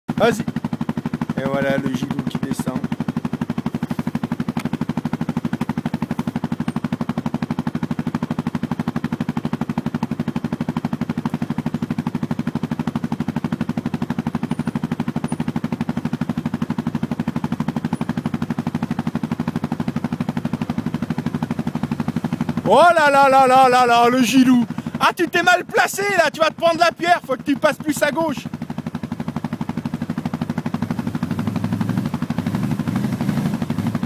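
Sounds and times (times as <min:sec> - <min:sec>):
quad bike engine running: 0:00.1 - 0:34.0.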